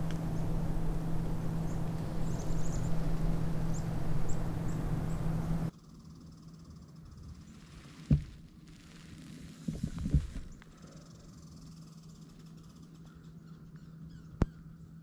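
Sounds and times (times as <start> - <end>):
high bird chirps: 0.0 - 5.7
low hum and rumbling: 0.0 - 5.7.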